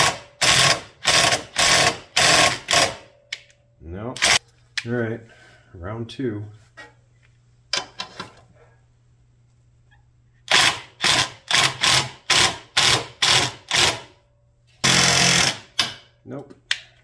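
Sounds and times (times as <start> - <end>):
impact wrench hammering: 0.0 - 3.2, 10.5 - 14.1, 14.8 - 16.1.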